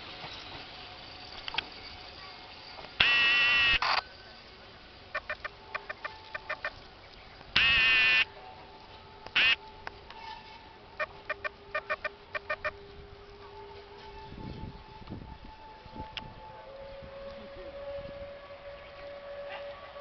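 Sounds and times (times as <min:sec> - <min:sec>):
locomotive whistle blasts: 0:03.0 - 0:04.0, 0:07.6 - 0:08.3.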